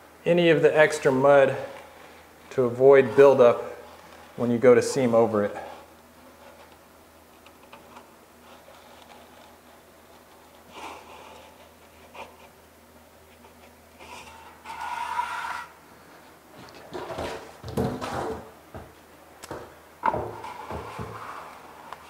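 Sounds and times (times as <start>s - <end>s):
trowel scraping membrane: 14.0s - 15.8s.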